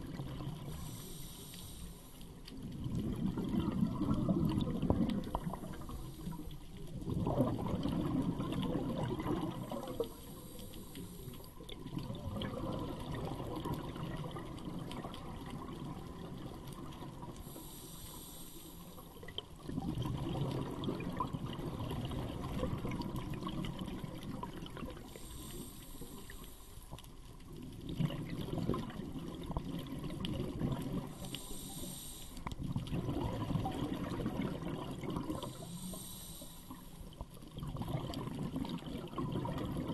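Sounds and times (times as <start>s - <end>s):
exhaled bubbles rushing: 0.0s - 1.0s, 2.6s - 10.2s, 11.6s - 17.4s, 19.2s - 25.3s, 27.5s - 31.5s, 32.6s - 35.7s, 37.4s - 39.9s
regulator hissing inhalations: 0.7s - 2.4s, 10.0s - 11.6s, 17.4s - 19.2s, 25.1s - 26.9s, 31.1s - 32.5s, 35.4s - 37.1s.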